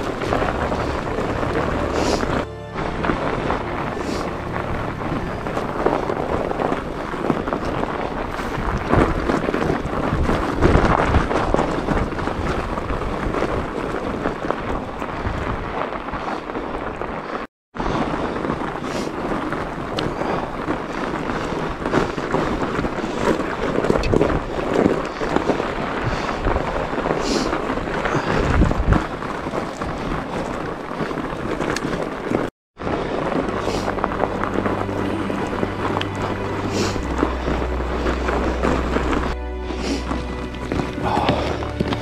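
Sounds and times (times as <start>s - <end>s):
background music low notes: 0.0s - 7.2s, 32.8s - 42.0s
bike rattle and tyres in snow: 0.0s - 42.0s
wind buffeting microphone: 0.0s - 42.0s.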